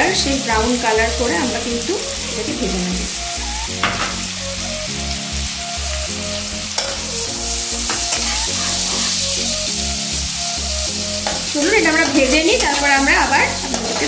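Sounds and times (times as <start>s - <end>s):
onions sizzling in a pan: 0.0s - 14.0s
metal spatula scraping a pan: 6.8s - 7.2s, 7.8s - 9.5s, 11.2s - 14.0s.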